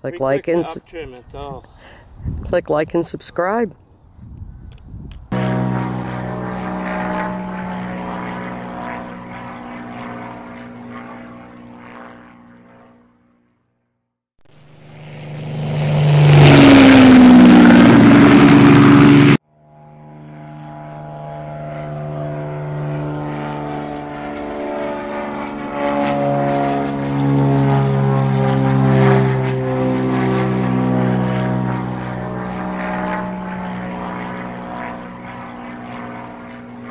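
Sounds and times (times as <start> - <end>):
model airplane rushing pass: 4.7 - 13.3, 14.5 - 36.9
model airplane motors humming: 4.8 - 12.9, 14.6 - 36.9.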